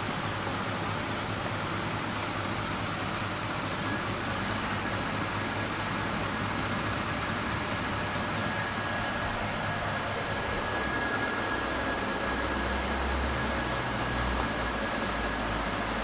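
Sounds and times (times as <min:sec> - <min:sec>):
hub motor whirring: 0:03.6 - 0:16.0
thin high whine: 0:03.7 - 0:06.5, 0:07.3 - 0:15.8.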